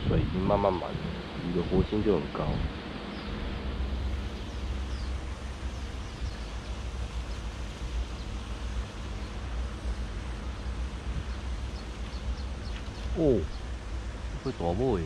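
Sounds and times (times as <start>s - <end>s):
wind on microphone: 0.0s - 15.0s
faint bird chirps: 4.1s - 13.8s.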